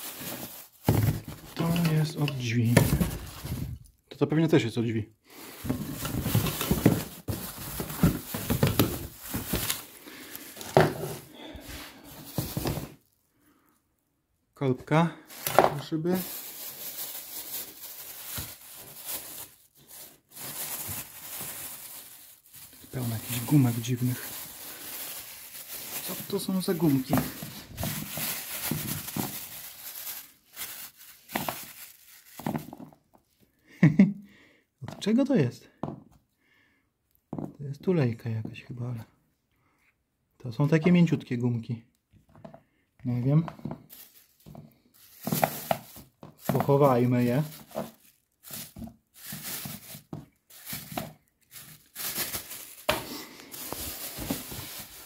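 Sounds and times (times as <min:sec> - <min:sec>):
plastic bags and newspaper rustling: 0:00.0 - 0:13.6, 0:14.6 - 0:34.1, 0:42.4 - 0:55.0.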